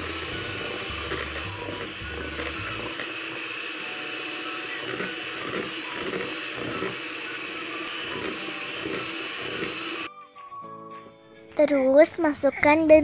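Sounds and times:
electric hand mixer whirring: 0.0 - 10.1.

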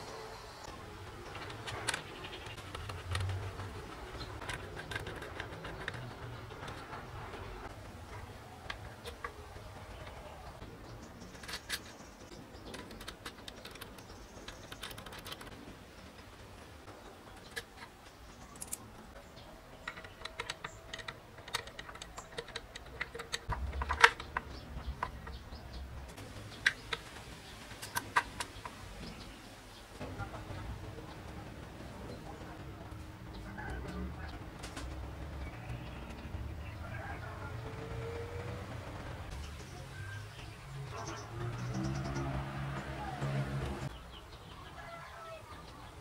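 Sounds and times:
small metal parts clicking: 11.2 - 15.5, 17.4 - 18.9, 19.8 - 25.4.

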